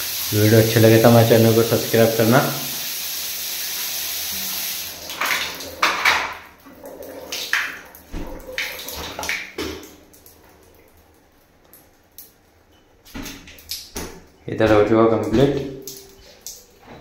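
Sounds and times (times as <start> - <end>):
shower head spraying water: 0.0 - 5.0
water splashes and drips: 0.0 - 17.0.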